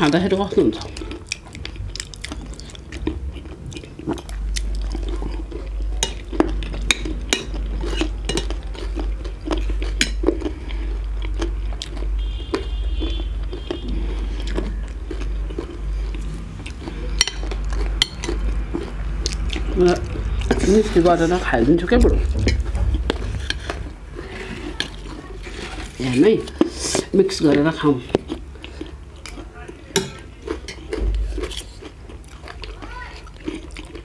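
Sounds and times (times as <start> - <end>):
chewing: 0.0 - 34.0
cutlery clinking on plates: 29.9 - 30.9.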